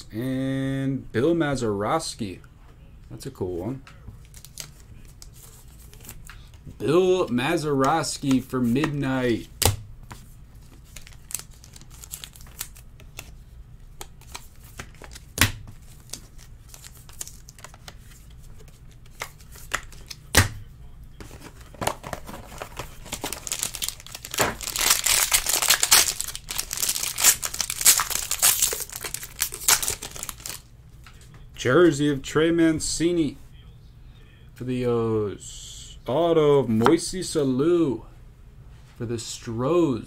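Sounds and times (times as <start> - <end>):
foil pack crinkling and tearing: 10.9 - 12.9, 22.0 - 30.6.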